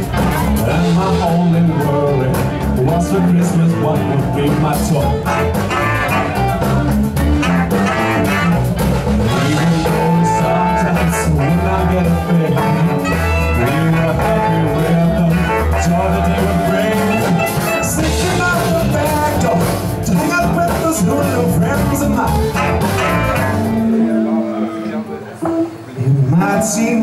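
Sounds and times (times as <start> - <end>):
man singing: 0.0 - 6.4, 9.3 - 25.2, 26.0 - 27.0
electric guitars: 0.0 - 27.0
live band playing: 0.0 - 27.0
saxophone: 5.0 - 18.2, 22.2 - 27.0.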